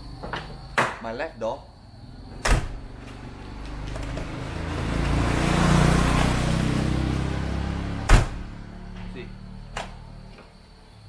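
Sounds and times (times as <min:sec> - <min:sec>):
vehicle driving past: 0:02.0 - 0:11.0
car door thump: 0:08.0 - 0:08.4.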